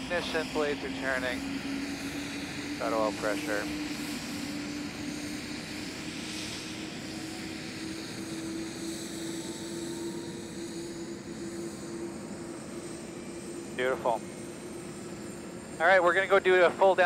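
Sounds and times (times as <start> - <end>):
helicopter rotor and airflow: 0.0 - 17.0
helicopter turbine whine: 0.0 - 17.0.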